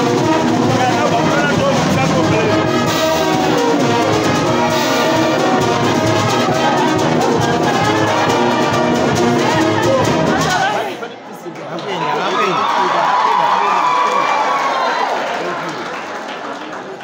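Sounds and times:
brass band playing: 0:00.0 - 0:11.0.

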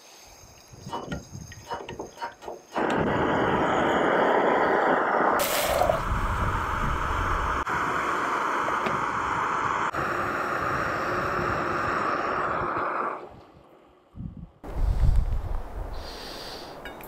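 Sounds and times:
gas stove hissing: 0:00.0 - 0:13.4.

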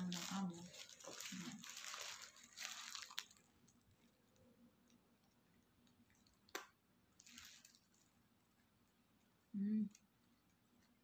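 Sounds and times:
paper wrapper rustling: 0:00.0 - 0:04.4, 0:07.2 - 0:08.2.

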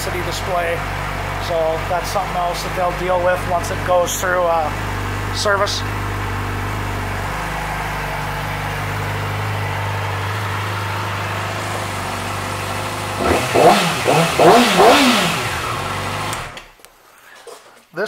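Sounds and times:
motorcycle engine idling: 0:00.0 - 0:16.6
engine revving in blips: 0:05.9 - 0:16.7.

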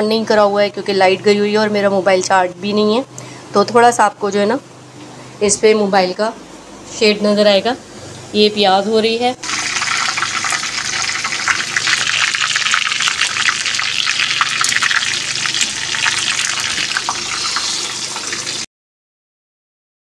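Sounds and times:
hot oil sizzling and crackling: 0:09.4 - 0:18.7.

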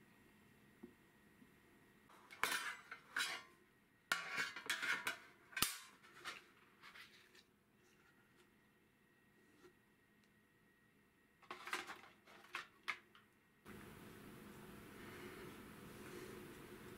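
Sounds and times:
metal cake pan clattering: 0:04.1 - 0:06.4.

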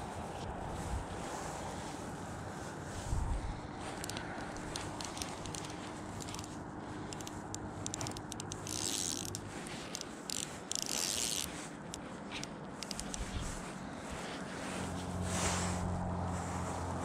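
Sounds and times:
fishing reel ratchet clicking: 0:04.0 - 0:13.4.

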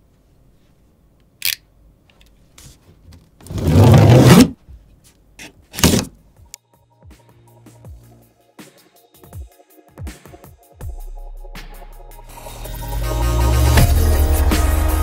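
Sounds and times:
electronic music: 0:06.8 - 0:15.0.

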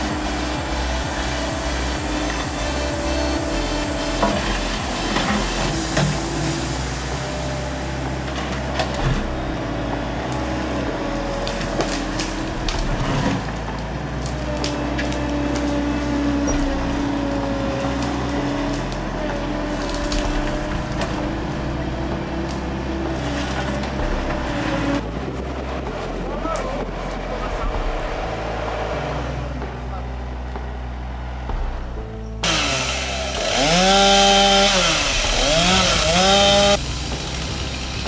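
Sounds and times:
loader engine under load: 0:00.0 - 0:38.0
wood and roots cracking: 0:11.2 - 0:24.6, 0:32.5 - 0:37.3.

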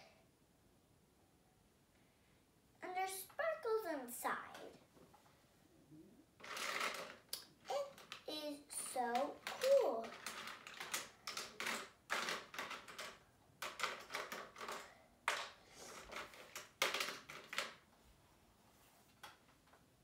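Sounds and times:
plastic items clicking and rattling: 0:06.4 - 0:17.8.

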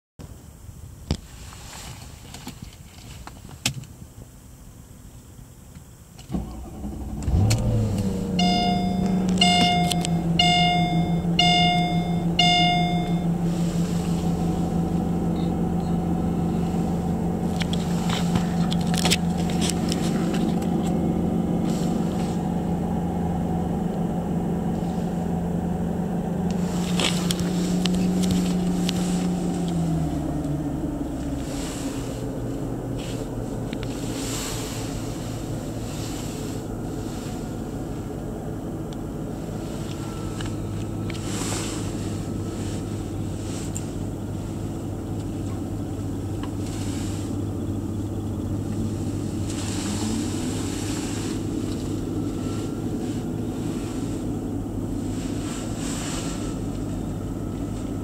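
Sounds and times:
car engine starting and idling: 0:03.5 - 0:58.0
dashboard chime beeping: 0:08.2 - 0:13.4.

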